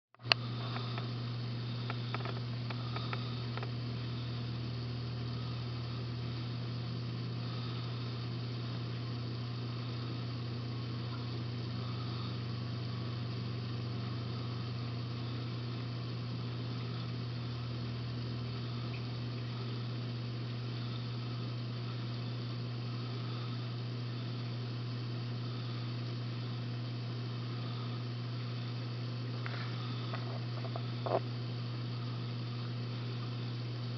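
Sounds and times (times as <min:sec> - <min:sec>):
aquarium pumps humming: 0:00.2 - 0:33.9
faint clicks: 0:01.8 - 0:03.8.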